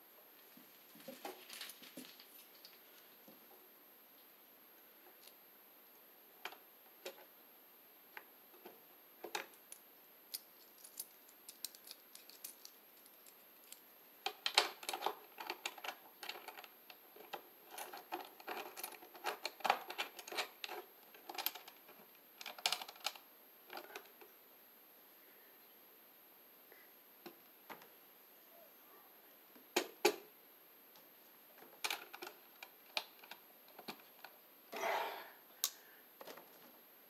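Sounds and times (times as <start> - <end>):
wires clicking and rattling: 0.6 - 3.2, 8.6 - 24.2, 31.0 - 34.4.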